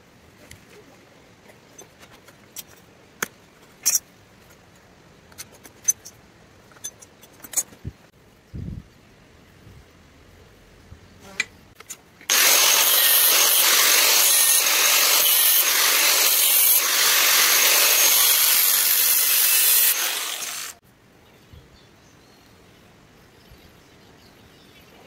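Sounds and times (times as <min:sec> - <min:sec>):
power grinder hissing on steel: 0:12.3 - 0:20.8.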